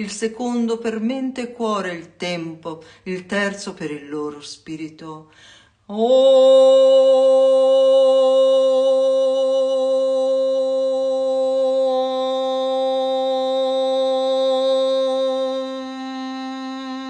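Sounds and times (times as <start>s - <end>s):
woman chanting om: 5.9s - 17.0s.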